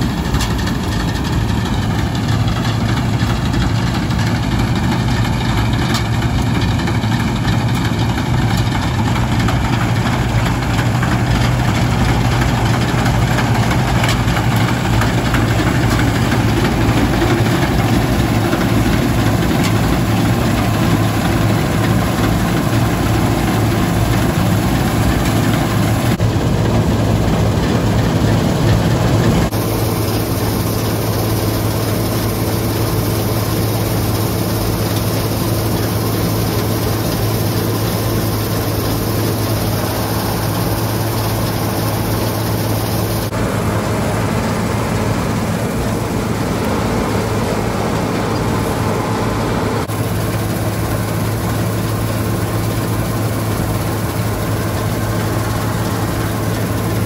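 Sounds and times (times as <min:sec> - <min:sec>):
combine harvester diesel engine droning: 0:00.0 - 0:57.0.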